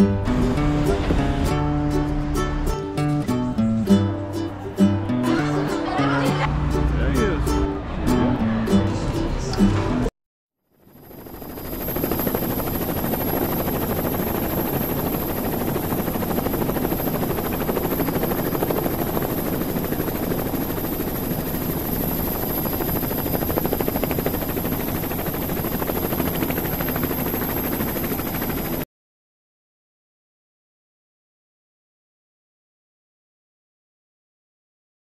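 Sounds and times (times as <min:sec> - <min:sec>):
helicopter rotor flutter: 0:10.7 - 0:28.8.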